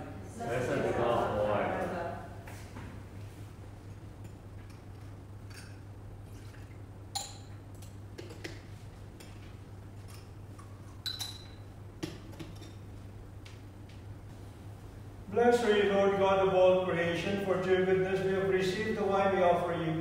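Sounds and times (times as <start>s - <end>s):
low steady hum: 0.0s - 20.0s
metal vessels clinking: 5.4s - 8.5s, 11.0s - 11.6s.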